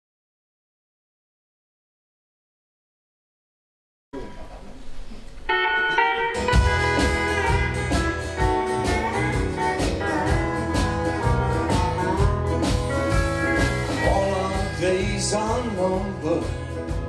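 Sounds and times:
electric and acoustic guitars: 4.2 - 17.0
pedal steel guitar sliding notes: 5.4 - 17.0
steady drum beat: 6.4 - 17.0.

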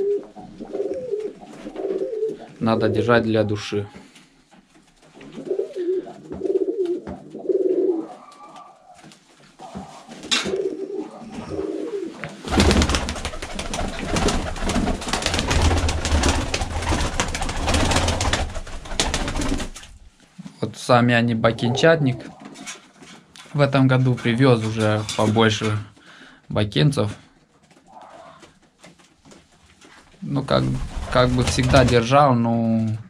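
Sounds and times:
pigeons cooing: 0.0 - 3.6, 5.2 - 19.8, 21.3 - 22.8, 27.8 - 28.5
wings flapping: 8.6 - 20.1, 30.5 - 32.2.

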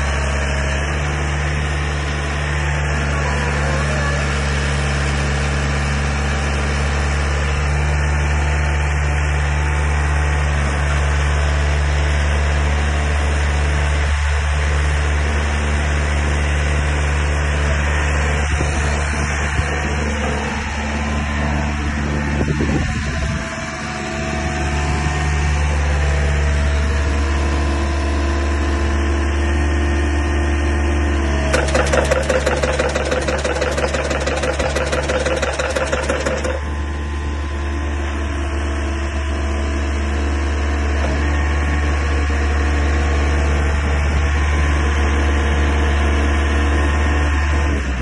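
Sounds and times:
pile driver engine running: 0.0 - 48.0
fast repeating rattle: 31.5 - 36.6.

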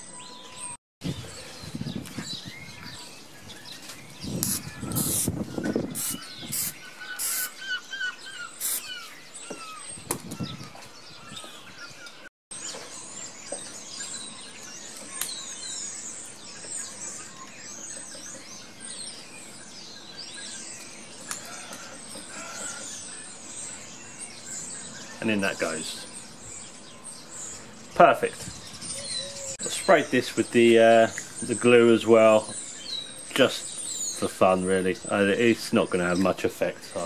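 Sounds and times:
small birds chirping: 0.0 - 37.0
aerosol can spraying: 4.4 - 5.4, 6.0 - 7.6, 8.6 - 8.9.

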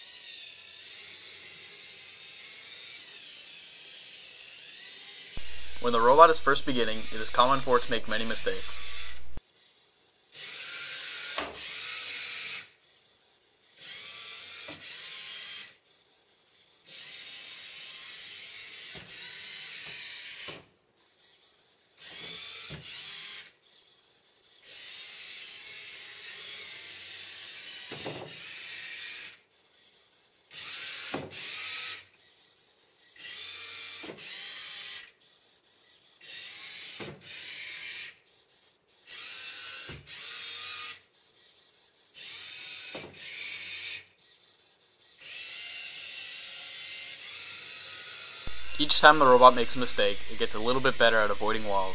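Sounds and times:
robot motors whirring: 0.0 - 5.8, 8.5 - 48.8.

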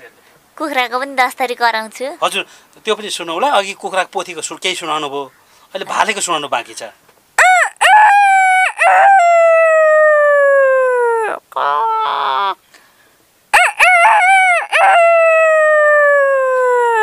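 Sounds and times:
woman imitating rooster crow: 7.4 - 12.6, 13.6 - 17.0.

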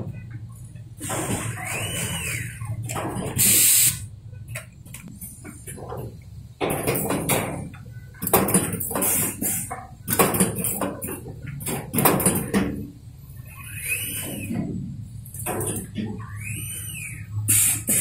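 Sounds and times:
rising and falling whistle: 1.6 - 2.7, 16.3 - 17.3
sharp hiss of air: 3.4 - 4.1, 17.4 - 18.0.

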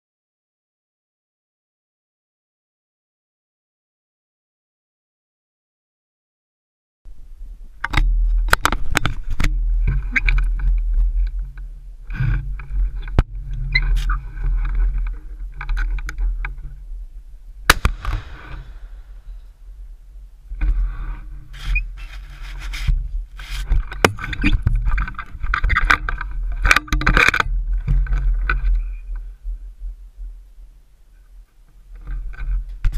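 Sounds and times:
steady low rumble: 7.1 - 26.7
sharp bang: 17.7 - 19.6.

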